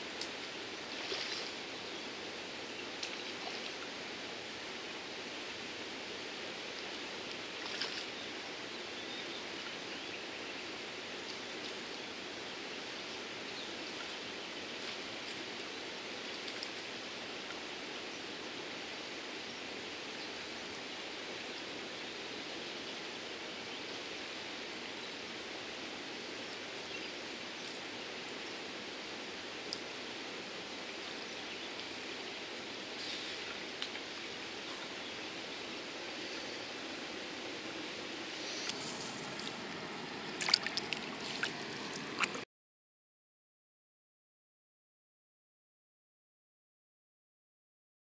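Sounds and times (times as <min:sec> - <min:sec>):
river water rushing: 0:24.2 - 0:42.4.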